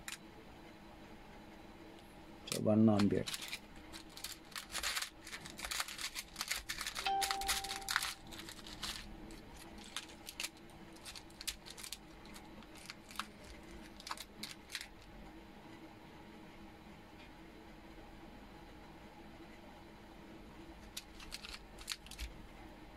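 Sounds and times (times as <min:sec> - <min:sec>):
small parts rattling in plastic box: 0:02.9 - 0:15.0, 0:20.8 - 0:22.3
short ringing note: 0:07.1 - 0:08.0.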